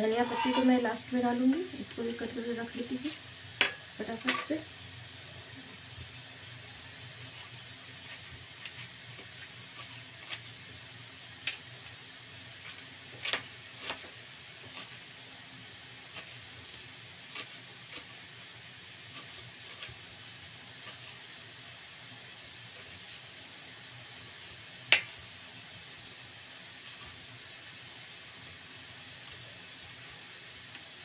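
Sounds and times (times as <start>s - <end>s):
steady hiss: 0.0s - 31.0s.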